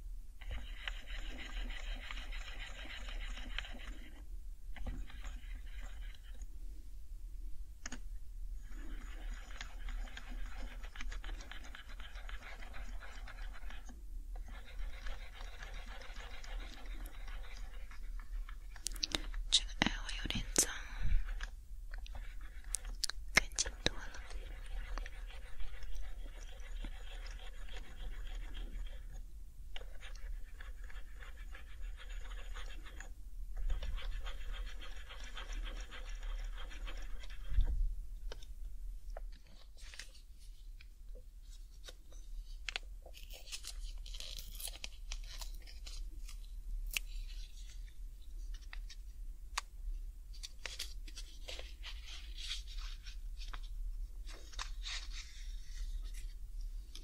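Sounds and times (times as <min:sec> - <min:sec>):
wipe rubbing over keycaps: 0:00.4 - 0:04.2, 0:08.7 - 0:19.3, 0:29.8 - 0:37.8
packet crinkling: 0:42.7 - 0:47.4.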